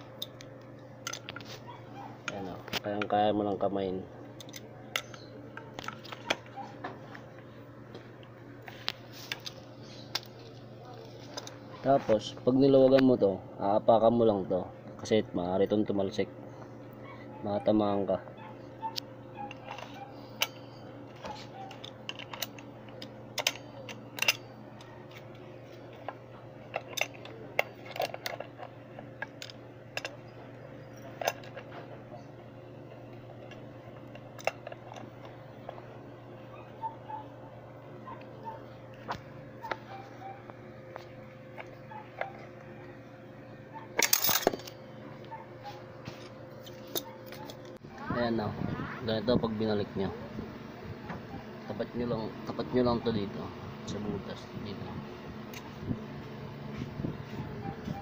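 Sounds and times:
wrench and nut metallic clinks: 0:44.0 - 0:44.8.

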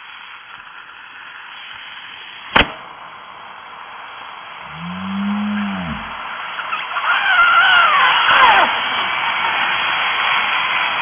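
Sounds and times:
battery cell bursting pop: 0:02.5 - 0:02.9
low drawn-out call: 0:04.6 - 0:08.8.

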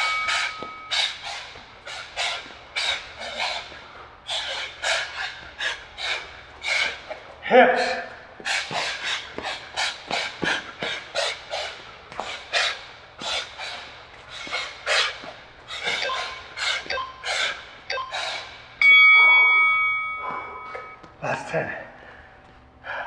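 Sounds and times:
electronic timer beep: 0:00.0 - 0:00.9, 0:15.9 - 0:17.3, 0:17.9 - 0:21.0.

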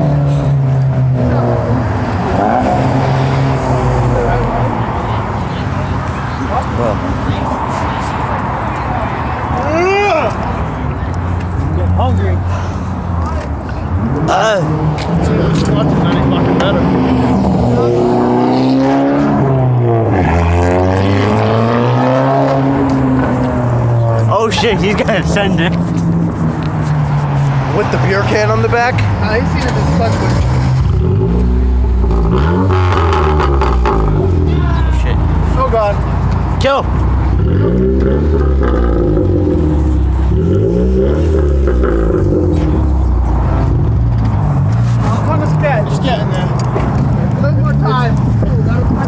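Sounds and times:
car engine revving high: 0:00.0 - 0:05.2, 0:14.0 - 0:26.4, 0:29.3 - 0:35.8, 0:37.3 - 0:47.0.

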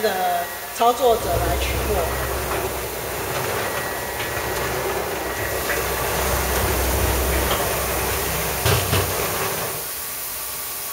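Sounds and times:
machine humming and hissing: 0:00.0 - 0:10.9.

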